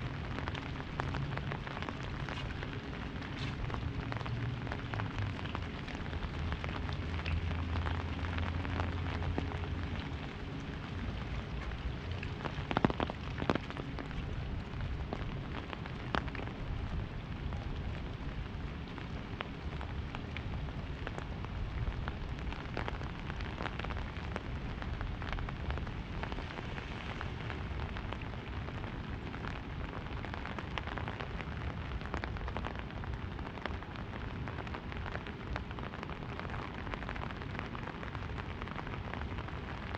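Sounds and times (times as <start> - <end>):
low hum: 0.0 - 21.4
rain pattering on umbrella: 0.0 - 39.9.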